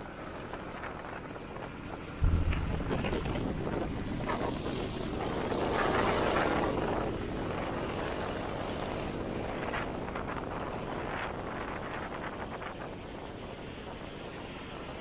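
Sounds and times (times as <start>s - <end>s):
motorcycle engine running: 2.2s - 5.1s.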